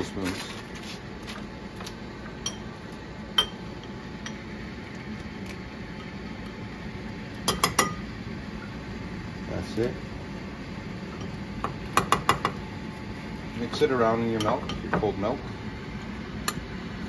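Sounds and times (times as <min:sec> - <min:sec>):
metal spoon clinking on ceramic bowl: 0:07.5 - 0:08.0.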